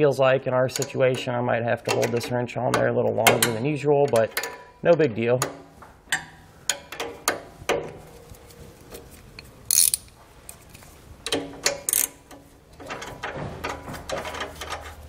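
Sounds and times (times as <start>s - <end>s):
socket ratchet clicking: 9.7s - 10.2s, 11.3s - 12.4s.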